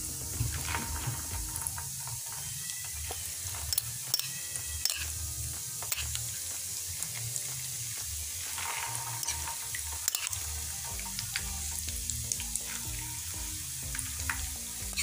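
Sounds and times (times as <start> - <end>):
hot oil sizzling: 0.0 - 15.0
metal spoon clicks: 3.7 - 5.1, 10.1 - 10.4.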